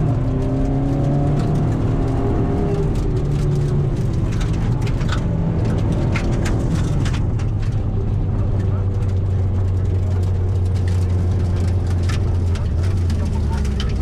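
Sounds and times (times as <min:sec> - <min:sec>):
car engine running hard: 0:00.0 - 0:14.0.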